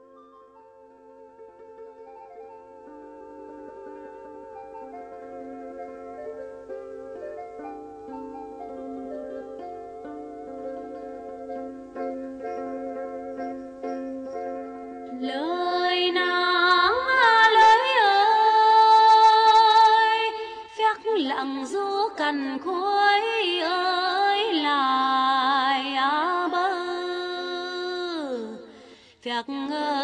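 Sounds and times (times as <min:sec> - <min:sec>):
plucked lute: 0:00.0 - 0:28.8
woman singing folk song: 0:15.1 - 0:30.0.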